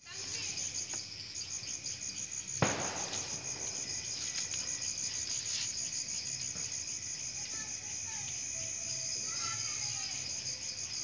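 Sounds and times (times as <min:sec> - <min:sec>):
crickets chirping: 0:00.0 - 0:11.0
high insect buzz: 0:00.0 - 0:11.0.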